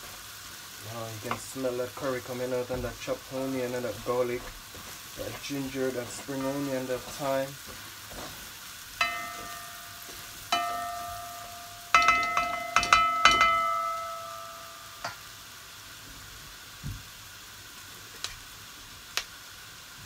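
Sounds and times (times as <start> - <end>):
low sizzling: 0.0 - 20.0
spoon knocking against metal pot: 9.0 - 9.8, 10.5 - 14.4
pot ringing: 9.0 - 15.3.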